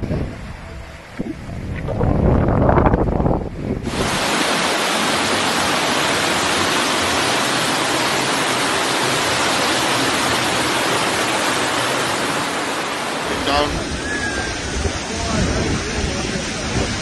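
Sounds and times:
rushing water hiss: 0:03.8 - 0:17.0.

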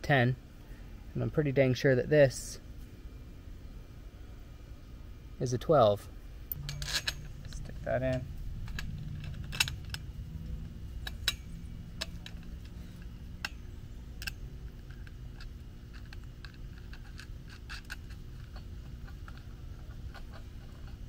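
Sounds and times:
low background rumble: 0:00.0 - 0:21.0
metal poles clicking and scraping: 0:06.5 - 0:21.0.

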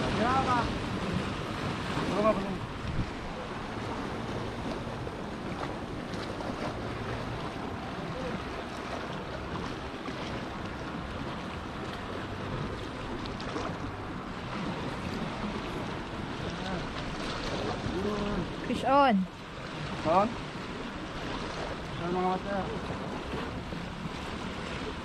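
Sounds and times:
waves splashing against rocks: 0:00.0 - 0:25.0
wind buffeting microphone: 0:00.0 - 0:25.0.

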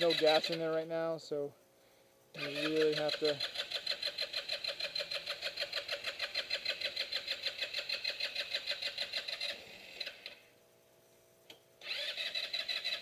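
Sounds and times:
starter cranking scooter engine: 0:02.4 - 0:10.4, 0:11.8 - 0:13.0.

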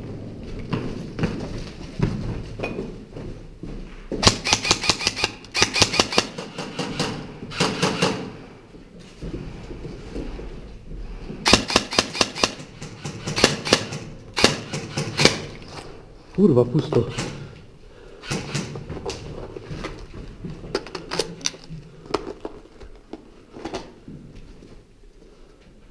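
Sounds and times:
airsoft gun full-auto bursts: 0:04.2 - 0:08.3, 0:11.5 - 0:15.5.

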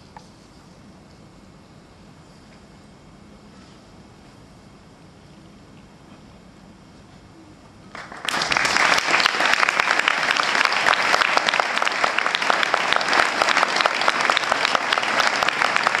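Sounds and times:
audience applause: 0:07.9 - 0:16.0.

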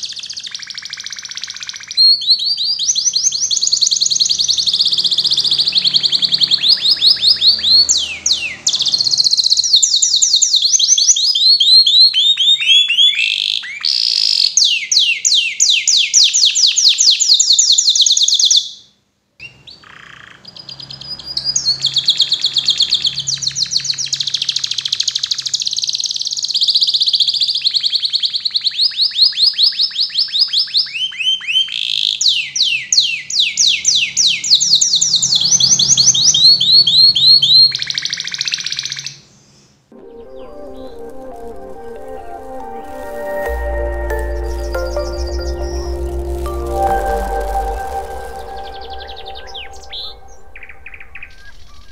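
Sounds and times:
canary singing trills: 0:40.0 - 0:51.9.

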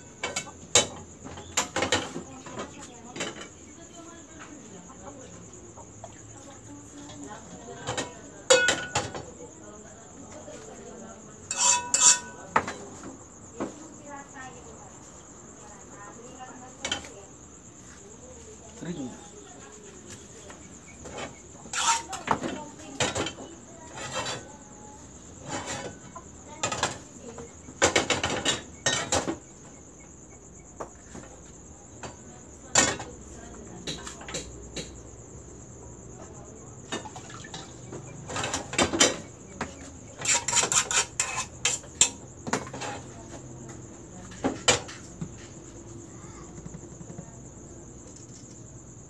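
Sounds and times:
metal pans and ladle clattering: 0:07.8 - 0:09.2, 0:11.5 - 0:12.8, 0:21.0 - 0:24.4, 0:27.8 - 0:29.4, 0:40.2 - 0:43.1.

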